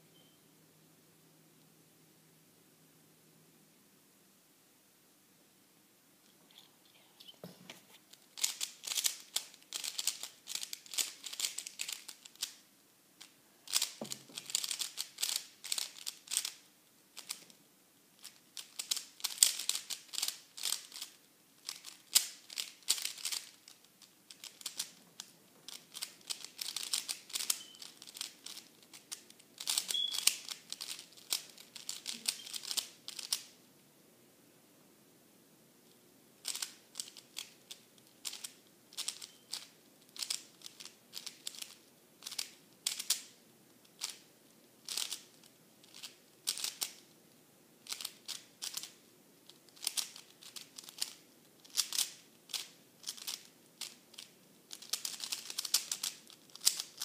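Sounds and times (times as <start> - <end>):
puzzle cube clicking as turned: 8.1 - 12.6, 13.2 - 17.6, 18.2 - 33.5, 36.4 - 44.2, 44.8 - 47.1, 47.8 - 57.0.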